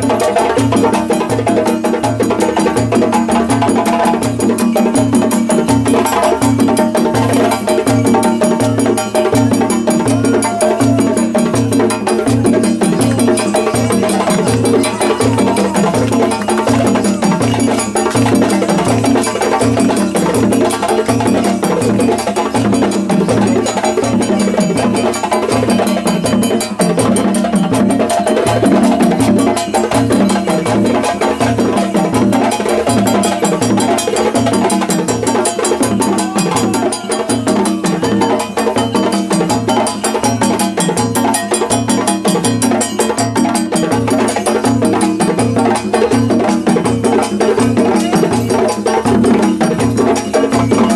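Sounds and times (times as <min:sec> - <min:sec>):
bells struck: 0:04.2 - 0:27.8.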